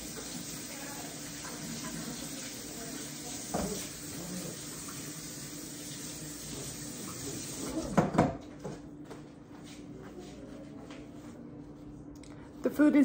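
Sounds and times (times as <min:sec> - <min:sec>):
faucet running into sink: 0:00.0 - 0:08.2.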